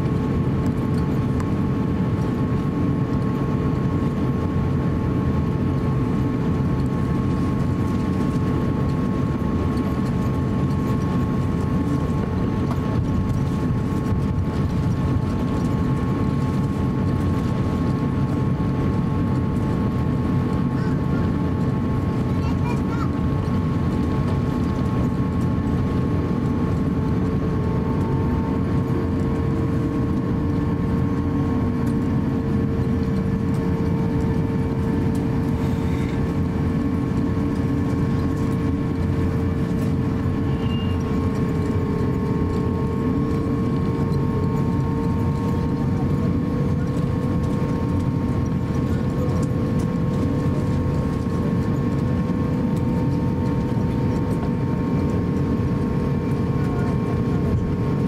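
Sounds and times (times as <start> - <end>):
jet engines rumbling: 0.0 - 58.0
engine whining tones: 21.9 - 58.0.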